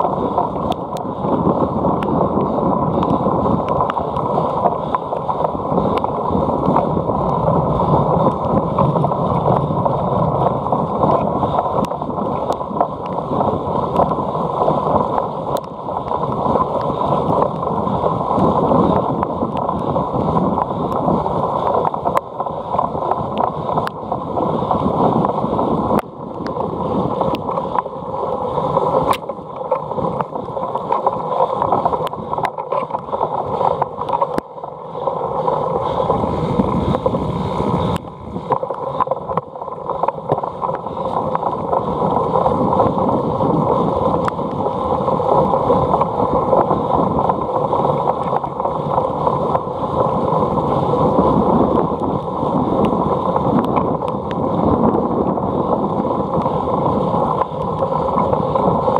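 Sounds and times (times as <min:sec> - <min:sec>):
wind rushing over microphone: 0:00.0 - 0:58.9
bike clicking and rattling: 0:29.0 - 0:37.1.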